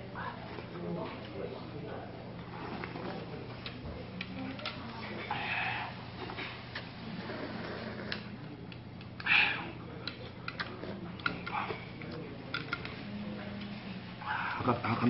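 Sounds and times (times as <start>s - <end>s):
steady low hum: 0.0s - 15.0s
chopsticks clicking against a bowl: 3.6s - 4.8s, 10.0s - 13.0s
chewing: 9.0s - 13.0s.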